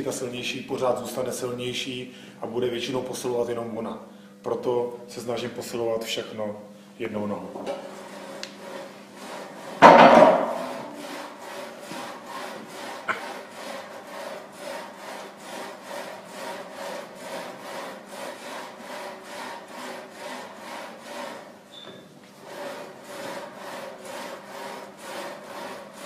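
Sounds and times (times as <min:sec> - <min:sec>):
leg press sled rasping on rails: 0:08.0 - 0:21.8, 0:22.4 - 0:26.0.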